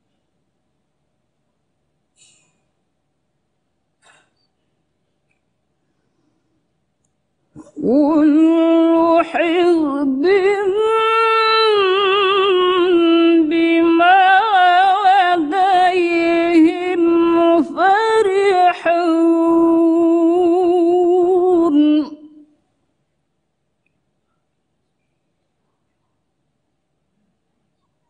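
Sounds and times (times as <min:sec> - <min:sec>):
woman chanting melodically: 0:07.6 - 0:22.6.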